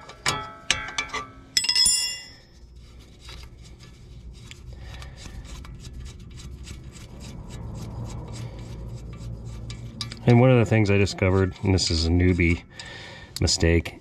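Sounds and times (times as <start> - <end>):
wrench clinking on metal nut: 0.2 - 2.4.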